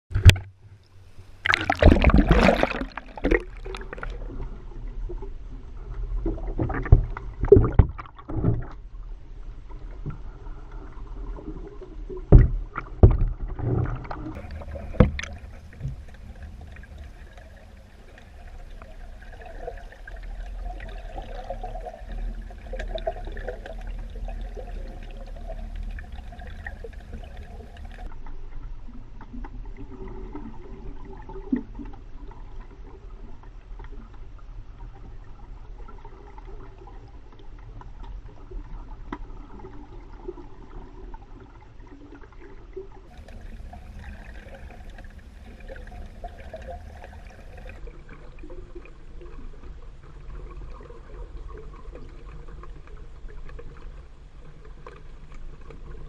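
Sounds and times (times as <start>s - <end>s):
water splash and rush: 0.1s - 5.4s, 11.0s - 28.2s, 43.0s - 56.0s
muffled underwater wash: 0.1s - 56.0s.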